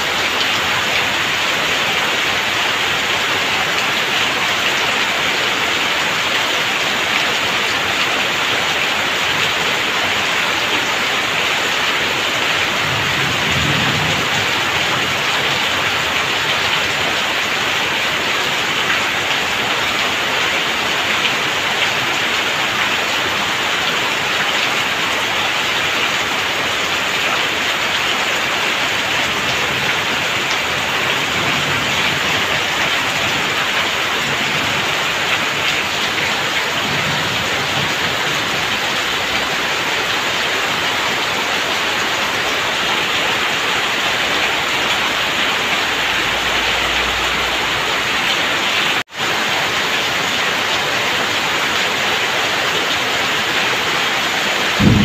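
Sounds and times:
heavy rain falling: 0:00.0 - 0:55.0
water splashing onto ground: 0:54.5 - 0:55.0
low rumble: 0:54.8 - 0:55.0.

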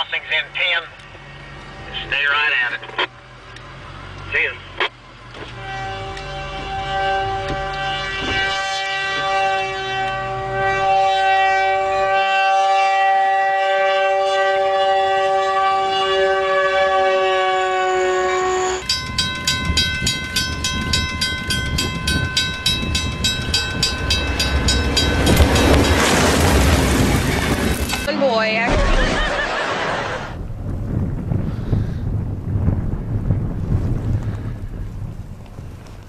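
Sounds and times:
locomotive horn: 0:05.4 - 0:29.6.

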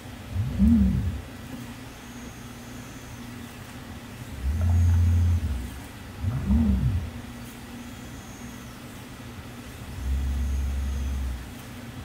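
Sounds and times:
motor low hum: 0:00.0 - 0:12.0
robot arm motor whine: 0:00.3 - 0:01.2, 0:04.2 - 0:07.2, 0:09.6 - 0:11.7.

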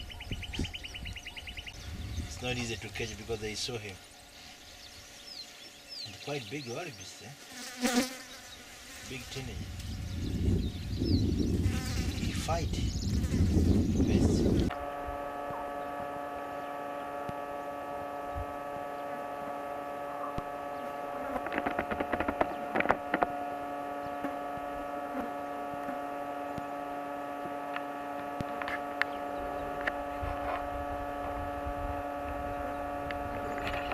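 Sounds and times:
steady multi-tone hum: 0:00.0 - 0:33.9
clicks and rustling: 0:21.2 - 0:23.4
sharp ticks: 0:21.3 - 0:23.3.

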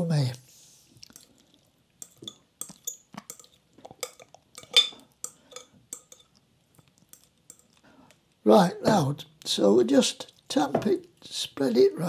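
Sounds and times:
metal utensil scraping glass dish: 0:02.0 - 0:06.3.

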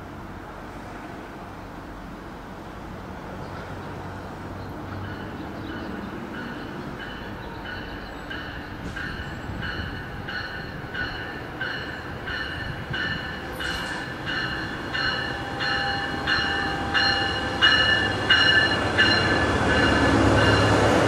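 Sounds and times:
low rumble of train: 0:00.0 - 0:21.0
locomotive bell ringing: 0:05.0 - 0:21.0.

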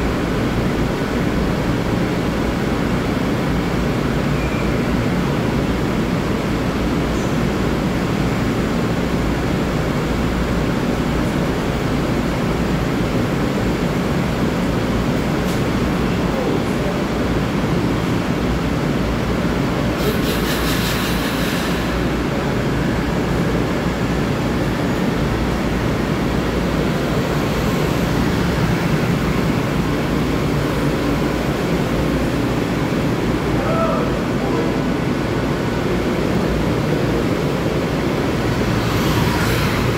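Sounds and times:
train equipment humming: 0:00.0 - 0:39.9
train doors hissing shut: 0:19.9 - 0:22.3.

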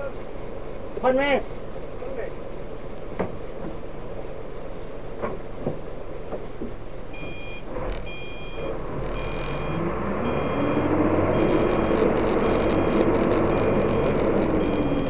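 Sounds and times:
diesel truck engine running: 0:05.8 - 0:15.0
electronic beeper: 0:07.2 - 0:15.0.

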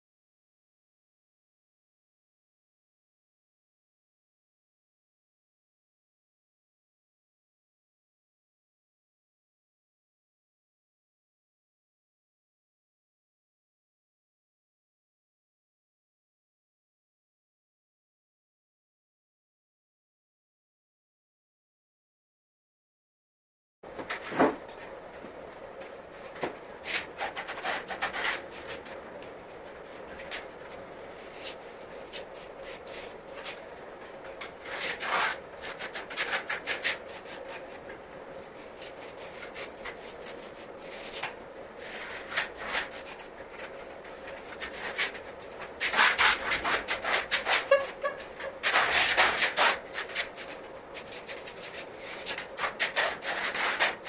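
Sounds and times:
faint steady hum: 0:23.9 - 0:54.0
trowel scraping plaster: 0:34.4 - 0:37.8, 0:44.2 - 0:54.0.

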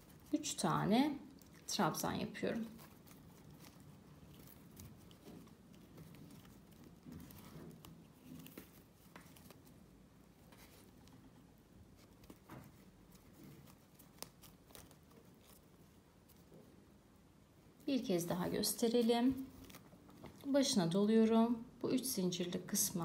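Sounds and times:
crochet hook drawing yarn: 0:00.0 - 0:09.8.

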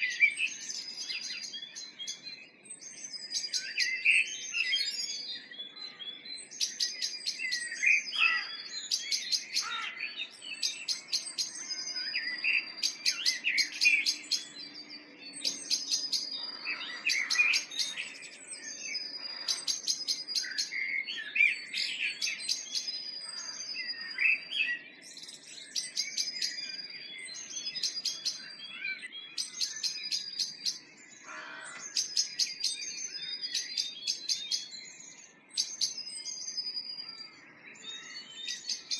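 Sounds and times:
songbirds singing: 0:00.0 - 0:38.9
trilled bird song: 0:00.0 - 0:38.9.

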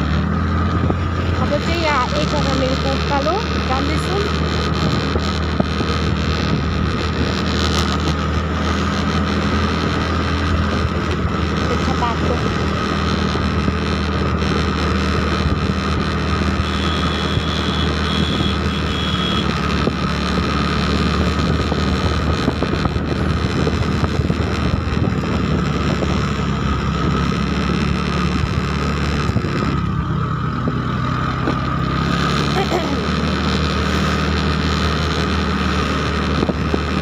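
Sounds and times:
vehicle engine running: 0:00.0 - 0:37.0
wind on microphone: 0:21.1 - 0:29.9.

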